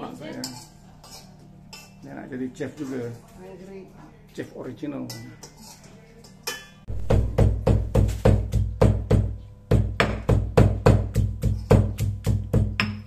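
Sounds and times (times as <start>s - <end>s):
music with percussive beat and bass: 6.9s - 13.0s.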